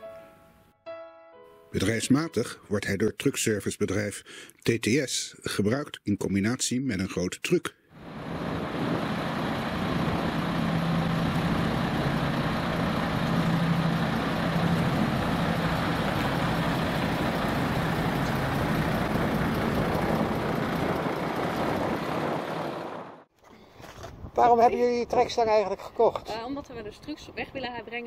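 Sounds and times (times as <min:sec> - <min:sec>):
truck diesel engine running: 0:08.0 - 0:23.3
road noise: 0:08.0 - 0:24.0.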